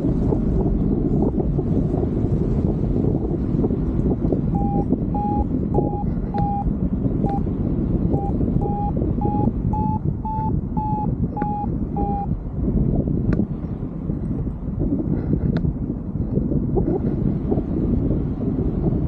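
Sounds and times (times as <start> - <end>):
wind rush on microphone: 0.0 - 19.0
variometer beeping: 4.4 - 12.4.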